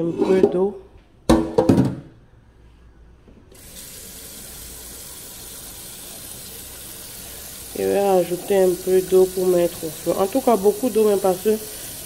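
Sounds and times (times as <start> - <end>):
tap water running into pot: 3.6 - 12.0
person speaking: 7.7 - 11.8.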